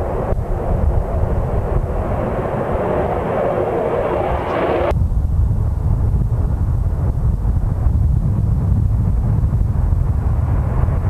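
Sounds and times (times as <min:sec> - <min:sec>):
fighter jet taking off: 0:00.0 - 0:07.9.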